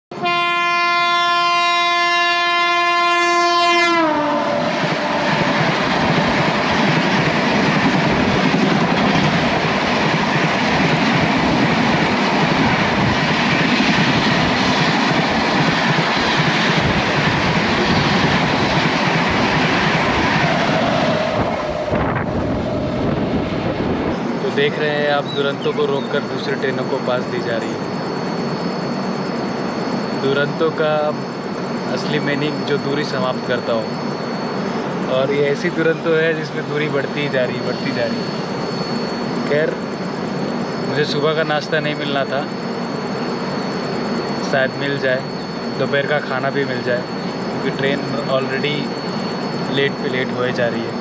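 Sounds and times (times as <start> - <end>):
train horn: 0.1 - 5.7
train coaches rushing past: 4.3 - 51.0.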